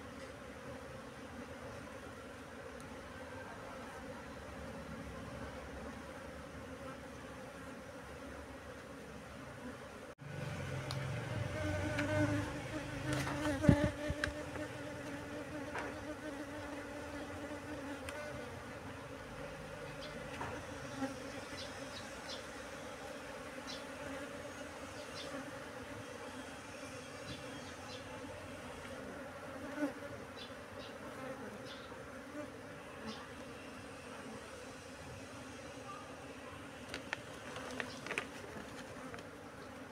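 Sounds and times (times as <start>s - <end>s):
honeybees buzzing: 0.0s - 39.9s
clicks and rustles of plastic: 36.9s - 39.3s.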